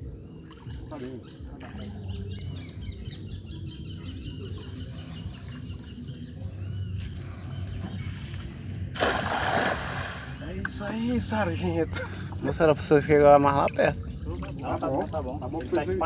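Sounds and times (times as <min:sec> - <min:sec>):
insects droning: 0:00.0 - 0:16.0
bird chirps: 0:00.5 - 0:08.5, 0:13.0 - 0:15.9.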